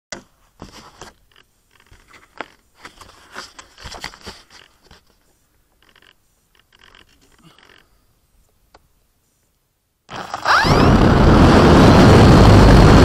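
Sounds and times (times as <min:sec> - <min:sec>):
crackling and scraping: 0:00.1 - 0:08.8.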